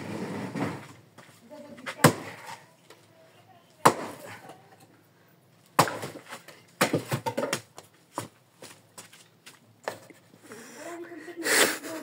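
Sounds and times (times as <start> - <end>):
axe chopping firewood: 1.9 - 2.6, 3.8 - 4.5, 5.7 - 8.3.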